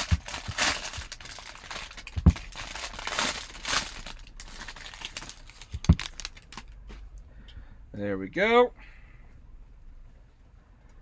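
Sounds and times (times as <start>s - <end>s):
foil wrapper crinkling: 0.0s - 6.8s.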